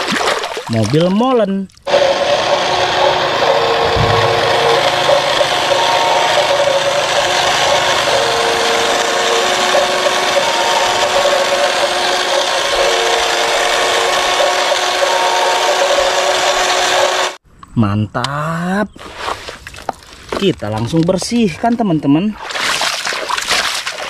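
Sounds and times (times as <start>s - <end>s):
faint tones: 1.9s - 14.4s
toy truck motor whirring: 1.9s - 17.4s.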